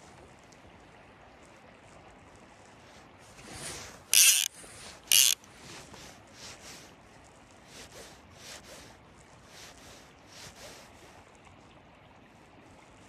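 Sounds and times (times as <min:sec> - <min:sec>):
fly reel drag clicking: 0:03.6 - 0:05.5.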